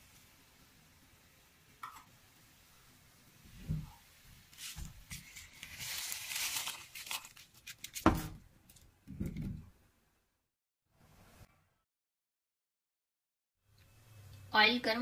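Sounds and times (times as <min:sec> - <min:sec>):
crinkling and rustling: 0:04.4 - 0:09.6.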